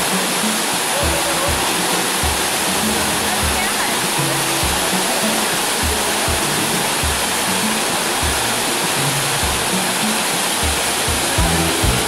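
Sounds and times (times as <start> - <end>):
low notes of background music: 0.0 - 12.0
waterfall rushing: 0.0 - 12.0.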